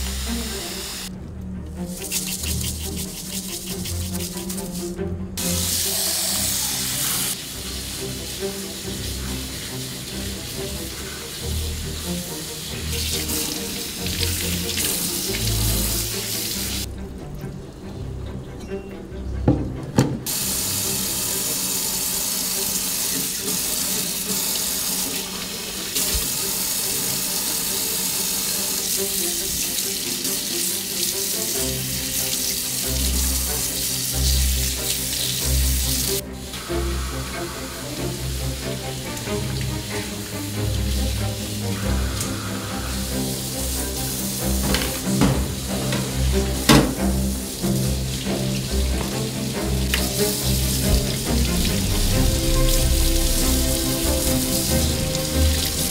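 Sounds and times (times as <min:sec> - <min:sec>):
faucet running water: 0:00.0 - 0:01.1, 0:01.8 - 0:17.6, 0:20.3 - 0:55.9
squid rubbed by hand: 0:02.0 - 0:05.0
tap running into steel sink: 0:44.6 - 0:47.1.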